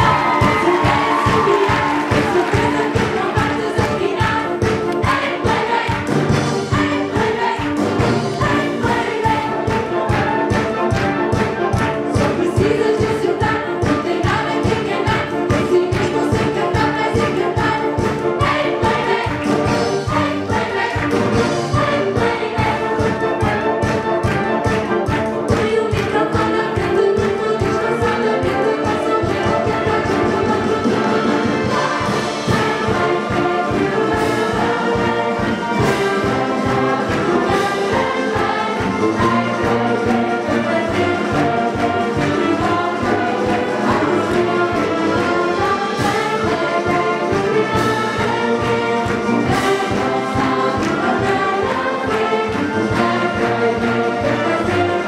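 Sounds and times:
young voices singing together: 0.0s - 10.7s, 12.2s - 23.2s, 25.6s - 55.0s
band accompaniment: 0.0s - 55.0s
steady drum beat: 0.0s - 55.0s.

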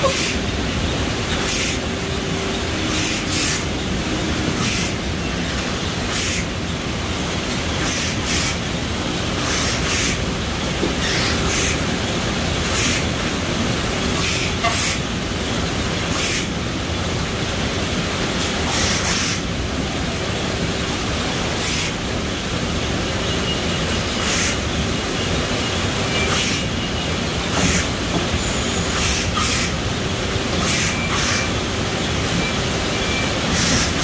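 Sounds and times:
conveyor machinery din: 0.0s - 34.0s
pneumatic air hisses: 9.4s - 10.2s, 11.0s - 11.8s, 12.6s - 13.1s, 16.1s - 16.5s, 18.6s - 19.4s, 24.2s - 24.6s, 30.6s - 31.6s, 33.5s - 34.0s.

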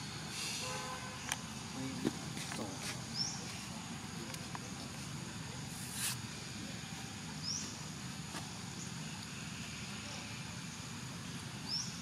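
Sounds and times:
insects humming: 0.0s - 12.0s
brief hiss of noise: 0.3s - 0.7s, 5.7s - 6.3s
bird chirp: 3.1s - 3.6s, 7.4s - 7.9s, 8.7s - 12.0s.

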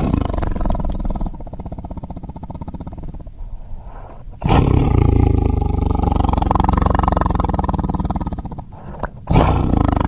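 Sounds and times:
monster roar: 4.4s - 10.0s.

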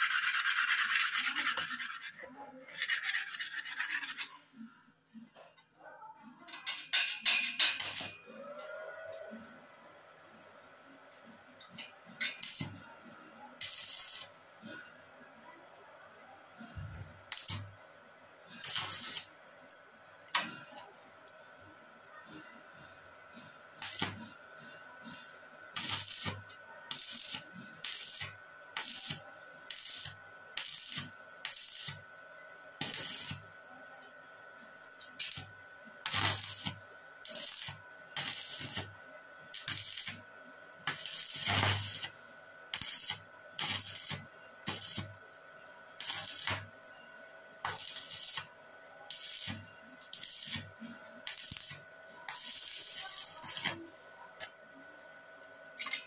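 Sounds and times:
welding arc crackling: 12.2s - 12.8s, 13.6s - 14.3s, 17.3s - 17.7s, 18.6s - 19.3s, 23.8s - 24.2s, 25.8s - 32.0s, 32.8s - 33.4s, 35.1s - 35.5s, 36.1s - 40.2s, 40.9s - 45.1s, 46.0s - 46.8s, 47.6s - 48.5s, 49.1s - 53.8s.

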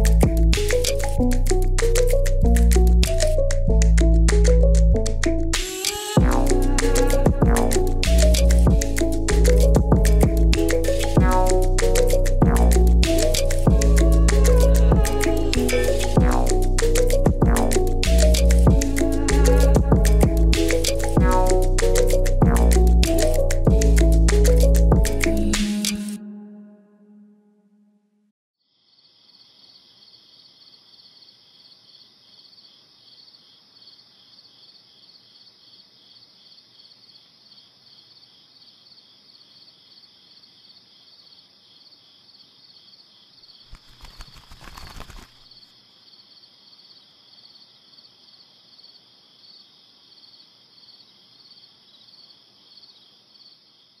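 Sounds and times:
crickets chirring: 28.7s - 54.0s.

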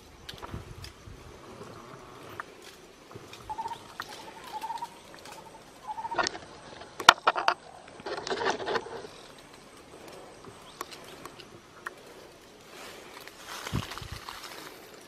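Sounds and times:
branches cracking: 0.0s - 15.0s
leaves rustling: 0.0s - 15.0s
bird trilling: 3.4s - 6.4s.

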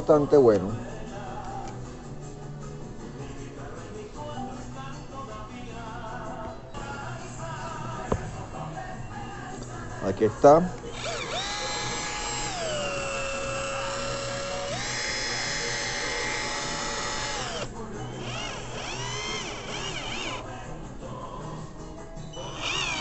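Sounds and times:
cordless drill motor whine: 10.9s - 20.4s, 22.4s - 23.0s.

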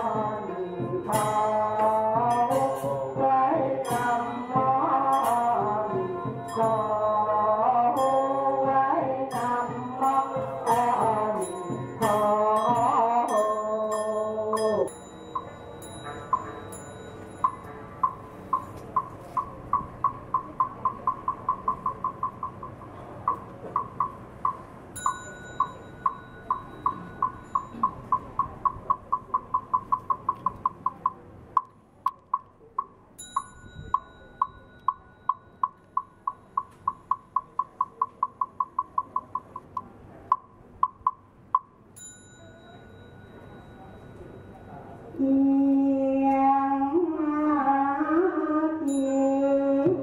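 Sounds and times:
bowl bell ringing: 3.8s - 7.0s, 9.3s - 17.8s, 24.9s - 28.0s, 33.2s - 36.2s, 42.0s - 44.9s, 48.9s - 49.6s.

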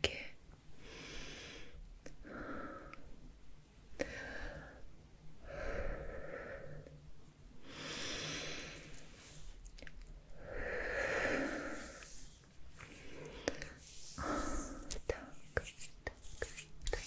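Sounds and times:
person breathing into microphone: 10.4s - 15.4s.

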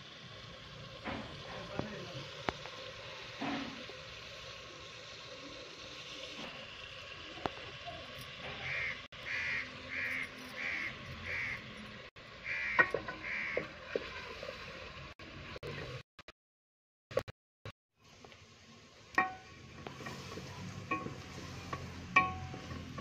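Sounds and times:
chicken frying in oil: 0.0s - 16.0s, 18.0s - 23.0s
crow cawing: 8.6s - 11.6s, 12.4s - 13.6s.

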